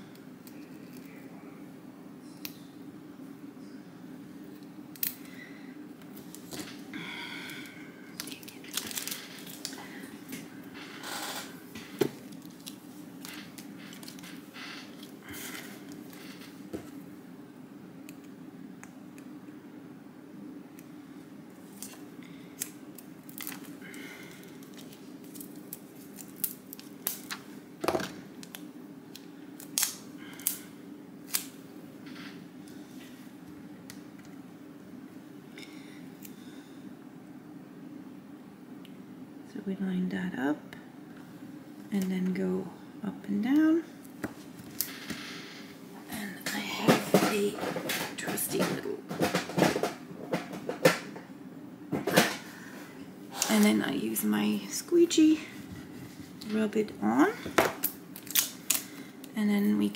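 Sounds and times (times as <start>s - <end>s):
faint steady hum: 0.0s - 59.9s
plastic sheet crinkling and clicking: 8.2s - 9.8s, 12.2s - 15.2s.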